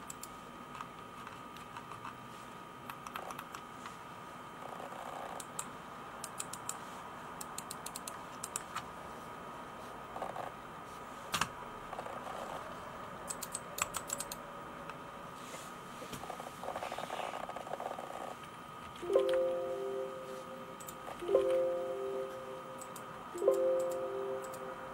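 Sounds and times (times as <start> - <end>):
mouse and keyboard clicks: 7.4 - 8.8, 13.3 - 14.4
faint high whine: 18.8 - 24.9.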